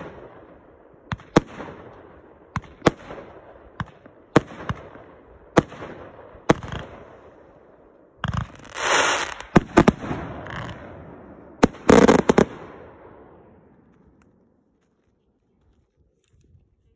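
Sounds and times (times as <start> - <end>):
fireworks bangs: 8.2 - 14.1
firework rushing hiss: 8.5 - 9.6.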